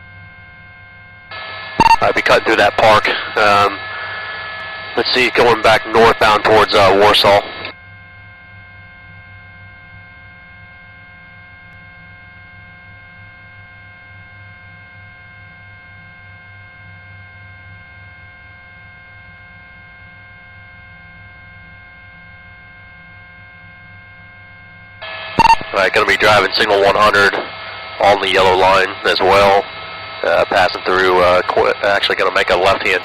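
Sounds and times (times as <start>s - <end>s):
helicopter hum and low throb: 0.0s - 33.0s.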